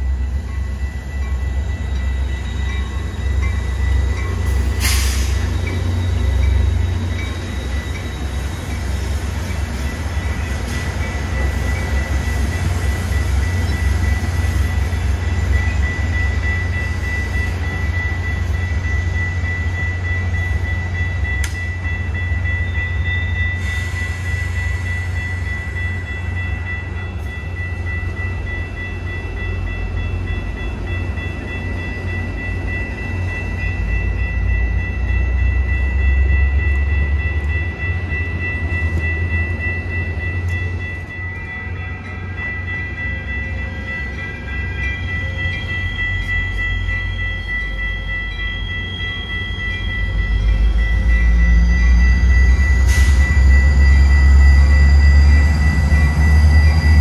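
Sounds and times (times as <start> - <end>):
train low rumble: 0.0 - 57.0
high-pitched whine: 31.6 - 57.0.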